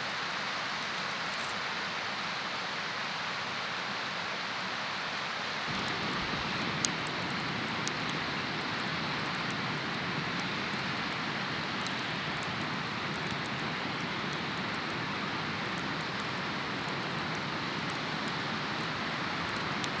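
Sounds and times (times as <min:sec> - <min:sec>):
steady rushing fire noise: 0:05.6 - 0:20.0
campfire crackling and popping: 0:05.7 - 0:20.0.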